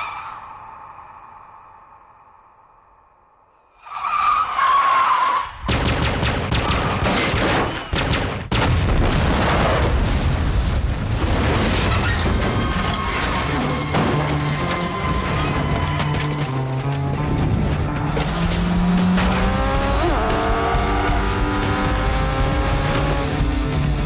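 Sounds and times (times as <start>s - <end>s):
rapid gunshots: 5.6s - 9.8s
explosions: 5.7s - 12.7s
car crashing: 11.1s - 19.7s.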